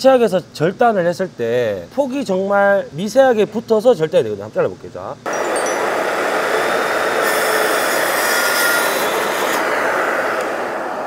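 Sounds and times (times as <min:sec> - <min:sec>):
plunge saw cutting wood board: 0:05.3 - 0:11.0.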